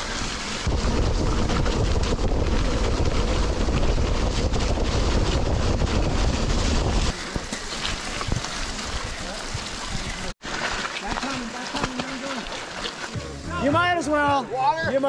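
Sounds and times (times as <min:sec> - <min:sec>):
wind rushing over microphone: 0:00.0 - 0:07.5
heavy rumble: 0:00.0 - 0:10.3
tyres rolling on wet dirt: 0:00.0 - 0:13.4.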